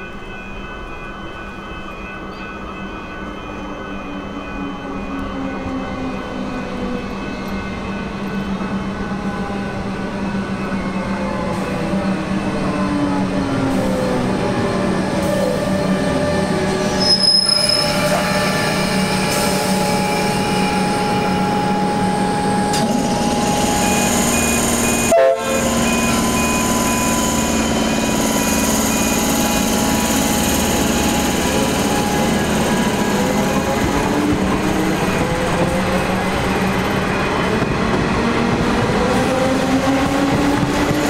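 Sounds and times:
electric train passing: 0.0s - 41.0s
wheel squeal: 16.9s - 20.7s.

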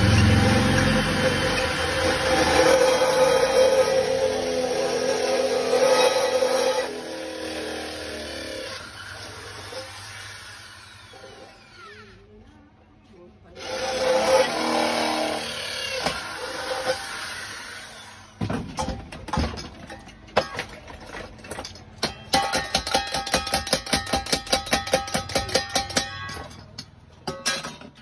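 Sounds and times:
electric hand drill running: 0.0s - 12.2s, 13.6s - 18.4s.

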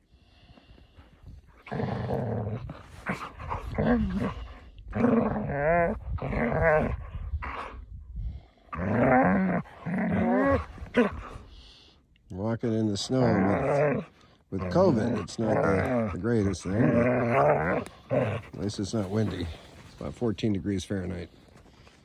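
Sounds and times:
dog play growling: 1.6s - 7.7s, 13.1s - 19.6s.

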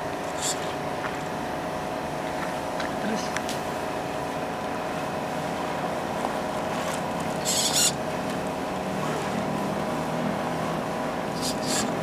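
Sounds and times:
rc car motor whining: 0.4s - 0.7s, 7.4s - 8.0s, 11.4s - 12.0s.

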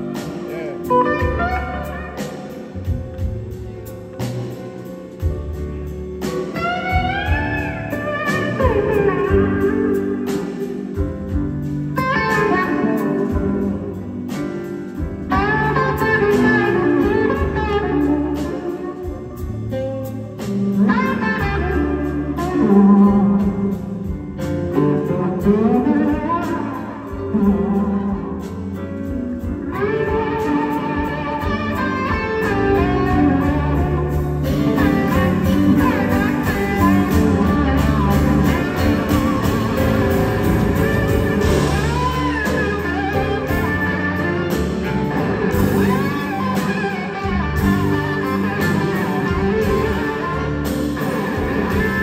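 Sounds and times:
blues band playing: 0.0s - 52.0s
slide electric guitar: 0.0s - 52.0s.

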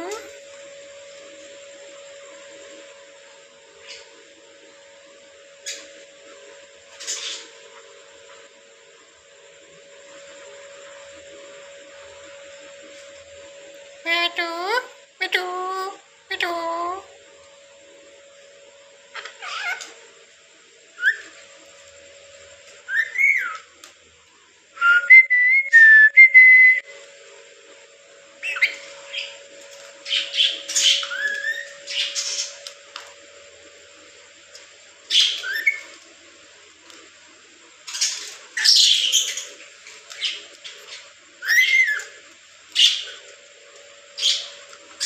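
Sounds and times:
lorikeets whistling and screeching: 19.4s - 19.9s, 21.0s - 21.3s, 22.9s - 23.7s, 28.4s - 29.4s, 30.0s - 32.6s, 35.1s - 35.9s, 37.9s - 39.5s, 40.2s - 42.2s, 44.2s - 44.6s.

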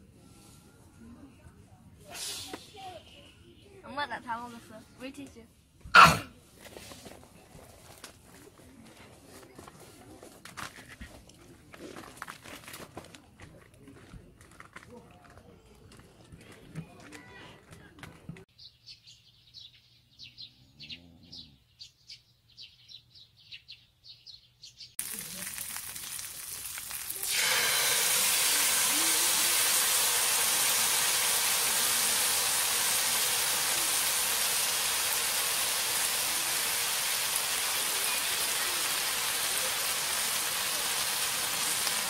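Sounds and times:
sauce squeezed into pan: 25.0s - 38.2s
food sizzling in a frying pan: 25.0s - 42.0s.

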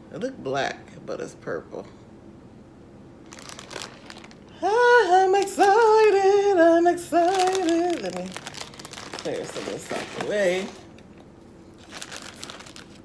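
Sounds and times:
plastic crinkling: 3.2s - 4.6s, 5.3s - 13.0s.

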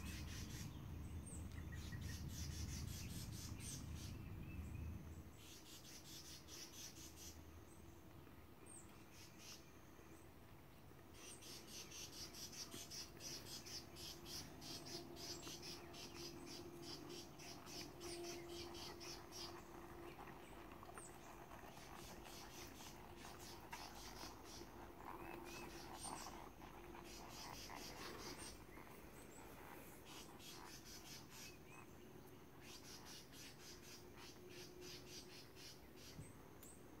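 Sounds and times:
insects trilling: 11.2s - 36.2s.

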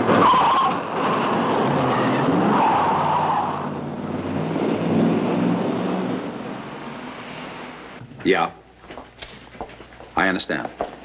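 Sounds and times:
car engines revving: 0.0s - 8.1s.

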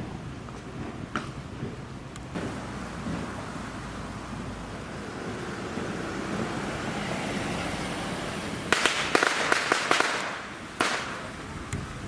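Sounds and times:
street noise: 0.0s - 12.0s
firecrackers cracking: 0.5s - 6.5s, 8.6s - 11.5s.

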